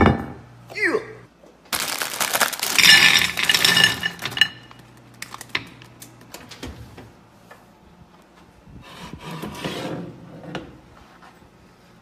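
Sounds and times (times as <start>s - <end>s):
candies clattering into bowl: 1.7s - 5.5s
plastic candy bag crinkling: 1.7s - 5.5s.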